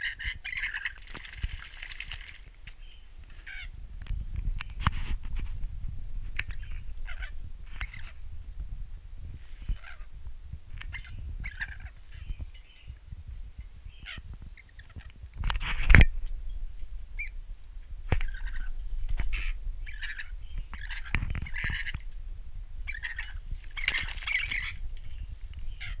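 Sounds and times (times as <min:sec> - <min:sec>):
bird splashing in water: 0:00.6 - 0:02.8
wing-flapping: 0:00.6 - 0:03.3, 0:23.6 - 0:24.8.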